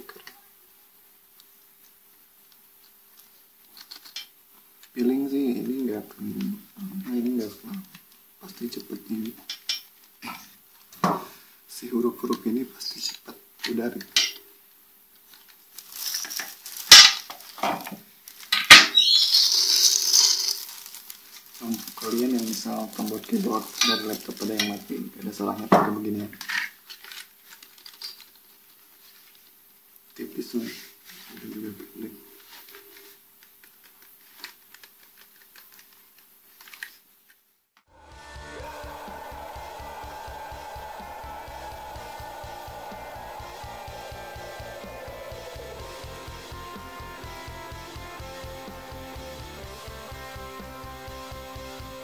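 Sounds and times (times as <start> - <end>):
plastic packaging crinkling: 15.2 - 25.0, 26.8 - 29.6, 33.4 - 37.0
loud sharp sounds: 37.9 - 48.4
music with steady beat: 37.9 - 52.0.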